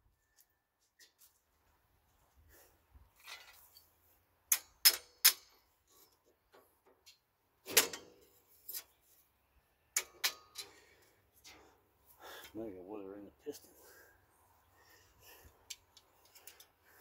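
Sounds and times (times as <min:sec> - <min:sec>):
metal tools clanking on metal: 0:10.0 - 0:10.9.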